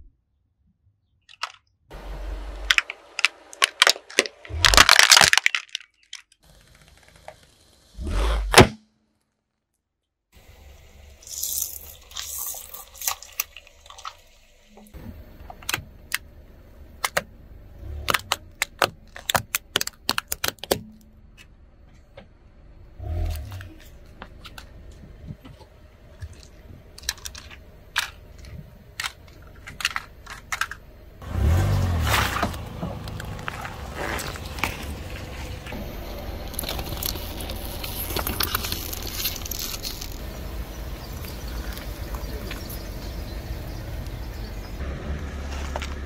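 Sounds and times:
objects crushed under car tyre: 2.7s - 6.3s, 31.4s - 42.7s.

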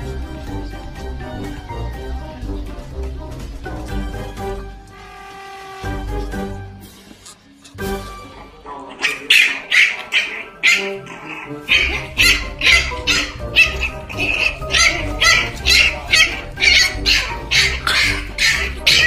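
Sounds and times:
background music: 0.0s - 19.0s
puppy crying in high squeals: 9.1s - 19.0s.

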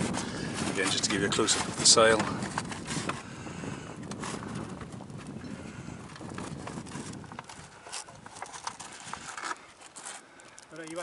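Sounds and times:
sail cloth rustling: 0.0s - 11.0s
soft knocks from sail ropes: 0.1s - 3.3s.

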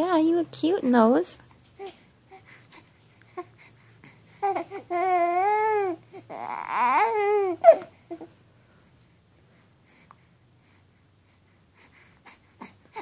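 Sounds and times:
baby cooing: 4.4s - 8.3s.

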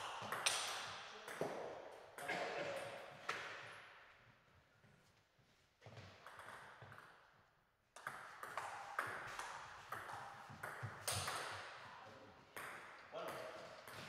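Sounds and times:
table tennis ball bouncing: 0.2s - 1.6s, 6.2s - 7.2s, 8.0s - 11.8s, 12.6s - 14.0s.

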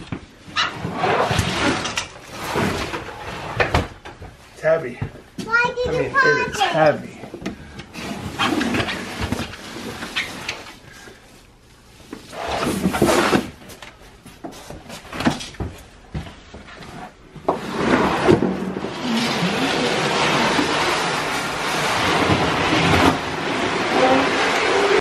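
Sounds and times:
rug dragged across wet floor: 0.6s - 3.9s, 12.2s - 13.6s, 17.0s - 25.0s.

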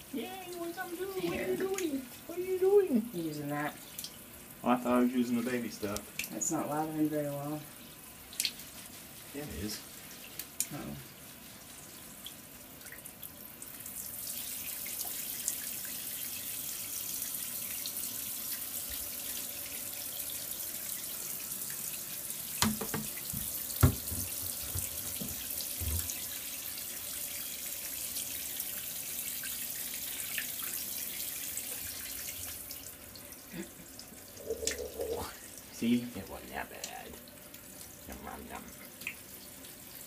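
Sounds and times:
shower water running into bathtub: 0.0s - 40.0s
knocks: 22.6s - 26.1s.

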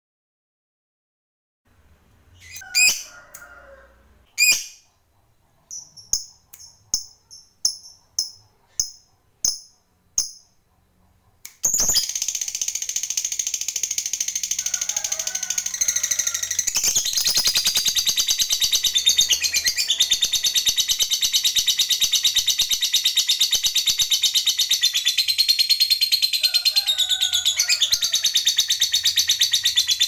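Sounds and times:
lovebird chirping: 2.3s - 3.0s, 4.3s - 10.6s, 11.6s - 14.6s, 15.9s - 26.3s
lovebird chattering trill: 5.7s - 10.5s, 11.6s - 14.7s, 15.6s - 26.3s.

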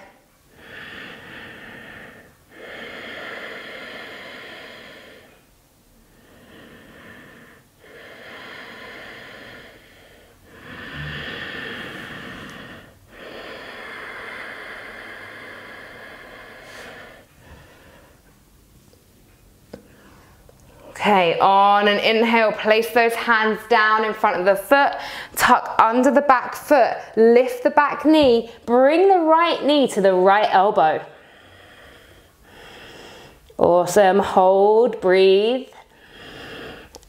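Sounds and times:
woman breathing deeply: 0.0s - 18.4s, 25.0s - 25.4s, 30.8s - 33.6s, 35.8s - 37.0s.

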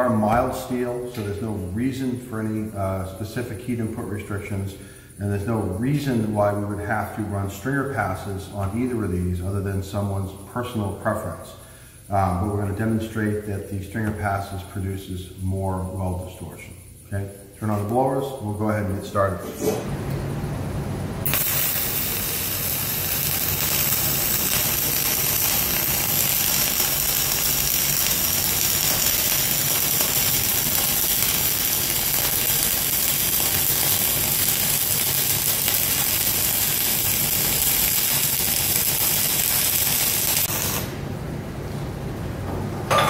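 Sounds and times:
welding arc crackling: 12.0s - 19.3s, 21.2s - 41.0s.

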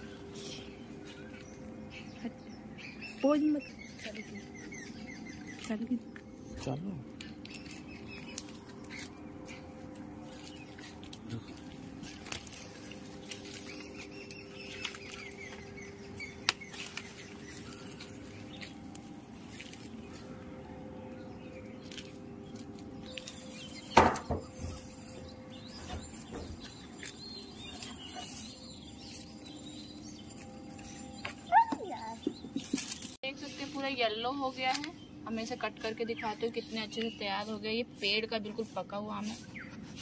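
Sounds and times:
leaves and branches rustling: 0.0s - 40.0s
branches cracking: 7.2s - 20.6s, 21.5s - 31.9s, 32.6s - 33.2s.

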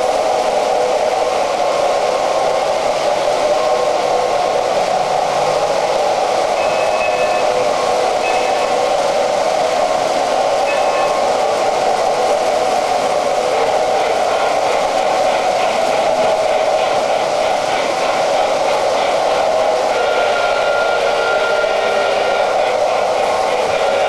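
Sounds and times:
model trains whirring on track: 0.0s - 24.0s.

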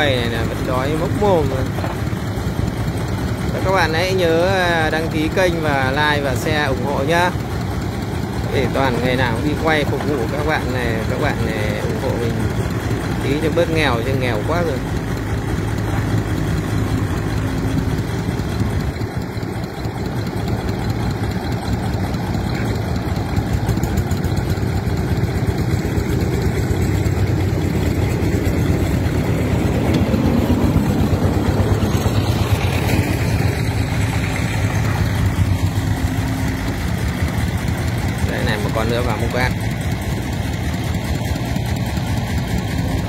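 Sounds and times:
diesel engines running: 0.0s - 43.0s
excavator loading sand: 14.8s - 38.2s.

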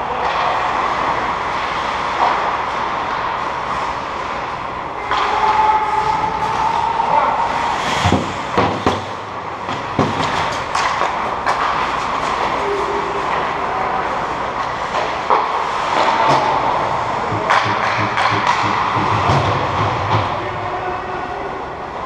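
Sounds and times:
hockey sticks and puck clacking: 0.0s - 20.8s
skate blades scraping ice: 5.4s - 9.2s.

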